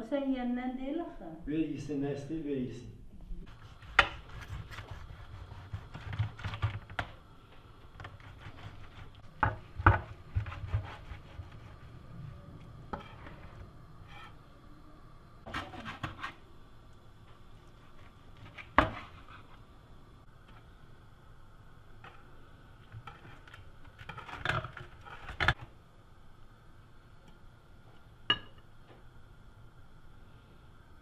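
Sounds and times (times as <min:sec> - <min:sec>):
rubbing and scraping on tray: 0:08.0 - 0:09.2, 0:09.8 - 0:12.0, 0:22.9 - 0:25.6.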